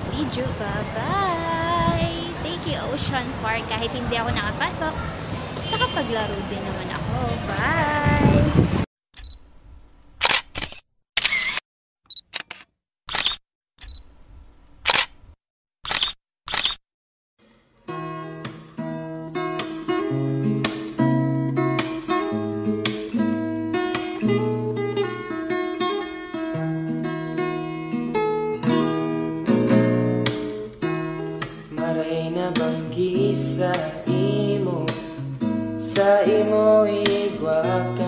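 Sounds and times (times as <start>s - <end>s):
camera shutter click: 10.2s - 11.6s, 12.4s - 14.0s, 14.8s - 15.2s, 15.9s - 16.8s
acoustic guitar strumming: 17.4s - 38.0s
person singing: 31.7s - 35.2s, 35.8s - 38.0s.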